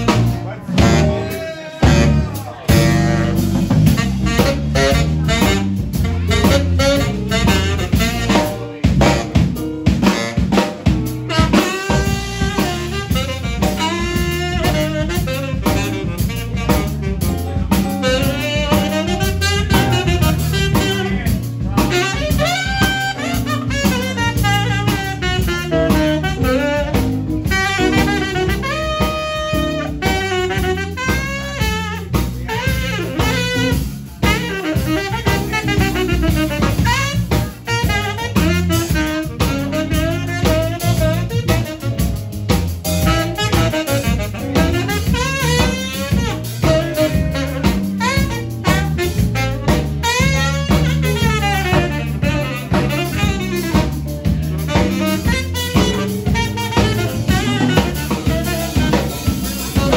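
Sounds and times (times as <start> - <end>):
drum kit: 0.0 - 59.9
saxophone phrases: 0.0 - 59.9.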